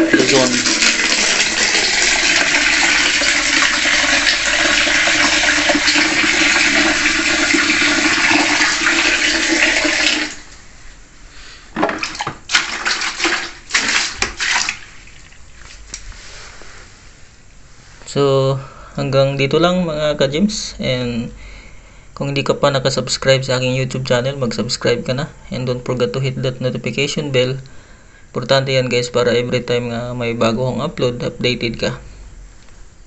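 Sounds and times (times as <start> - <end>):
plastic knocks and clatters: 11.8 - 12.4.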